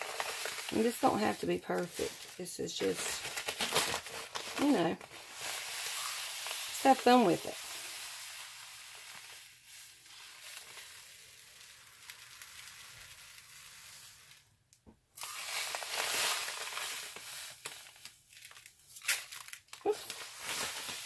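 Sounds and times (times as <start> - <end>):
salt poured into plastic bowl: 5.1 - 14.5, 15.2 - 17.9.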